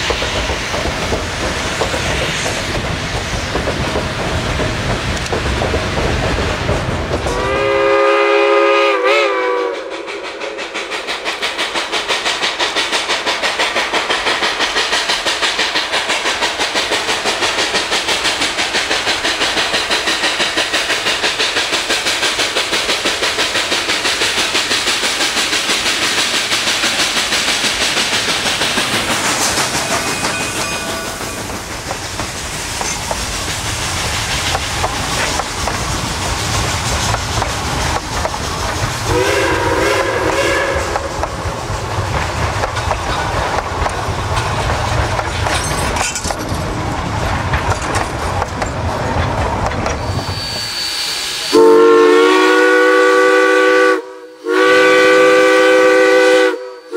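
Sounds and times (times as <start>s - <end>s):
steam train running: 0.0s - 56.9s
train whistle blast: 7.3s - 10.8s, 39.1s - 41.2s, 50.0s - 56.9s.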